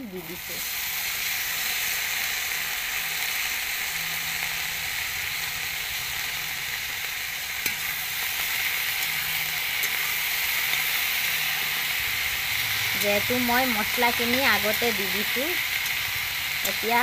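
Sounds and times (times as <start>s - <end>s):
vegetables sizzling in oil: 0.0s - 17.0s
metal spatula stirring: 8.9s - 11.0s, 13.8s - 17.0s.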